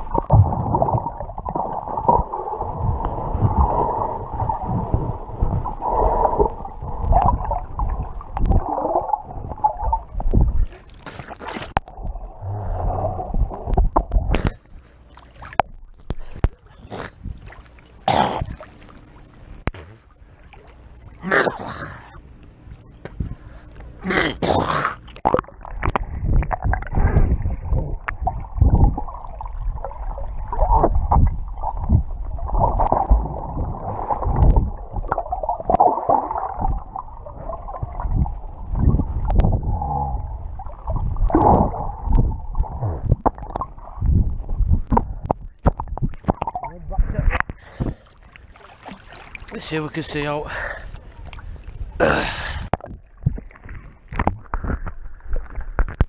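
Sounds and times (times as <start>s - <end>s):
muffled underwater gurgling: 0.0s - 14.7s, 15.5s - 48.1s
water splashing and sloshing: 0.0s - 56.0s.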